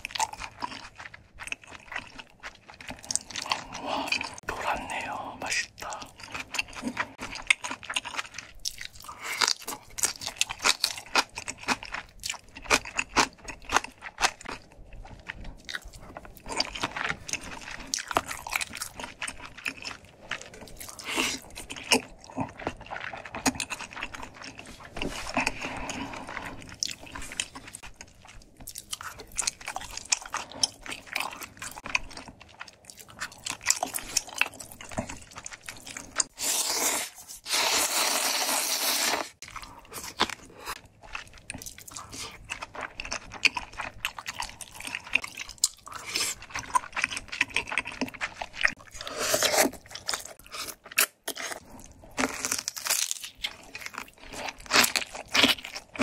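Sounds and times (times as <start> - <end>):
loud noodle slurp: 36.3 - 39.4.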